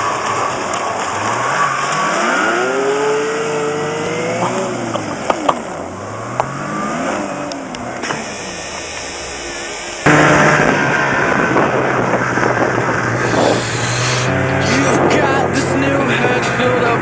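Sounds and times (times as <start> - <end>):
snowmobile engine revving: 0.0 - 5.3, 13.0 - 17.0.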